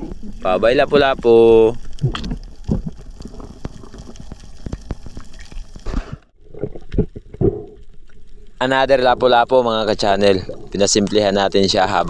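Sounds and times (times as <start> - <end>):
rushing water underwater: 0.0 - 12.0
sharp crackling clicks: 1.7 - 6.0.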